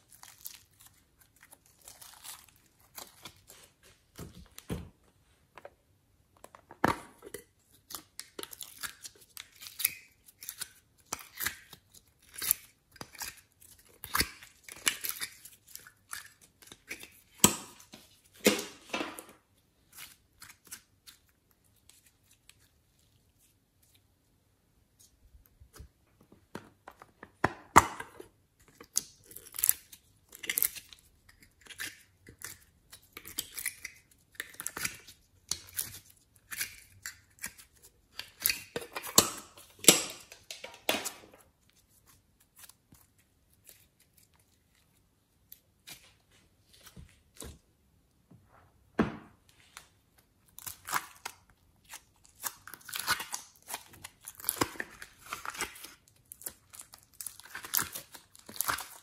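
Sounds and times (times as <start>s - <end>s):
sticky slime crackling and popping: 50.4s - 59.0s.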